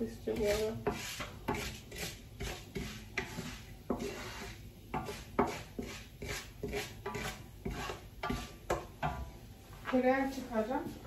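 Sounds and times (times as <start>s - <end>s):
rubbing and scraping: 0.4s - 8.6s.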